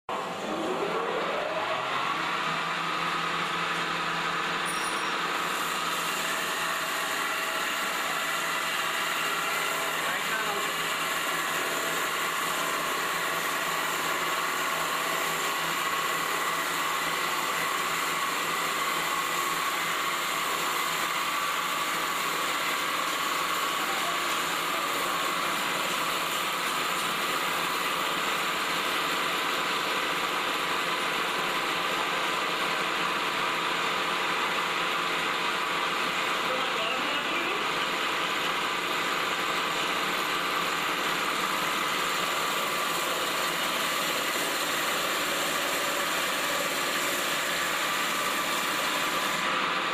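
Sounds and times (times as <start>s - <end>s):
lathe machine drone with whine: 0.1s - 49.9s.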